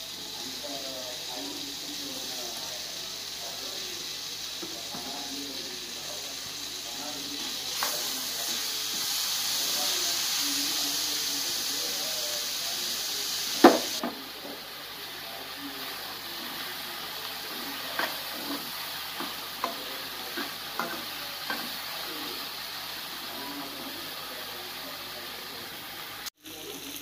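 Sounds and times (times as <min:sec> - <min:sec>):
vegetables sizzling in a pan: 0:00.0 - 0:27.0
spatula tapping and scraping pan: 0:17.9 - 0:21.8
metal spatula clanking on pan: 0:18.0 - 0:21.7.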